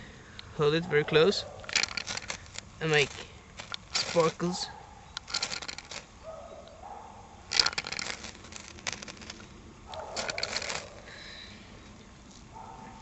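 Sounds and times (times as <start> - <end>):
fire striker scraping rod: 1.6 - 6.1, 7.5 - 11.2.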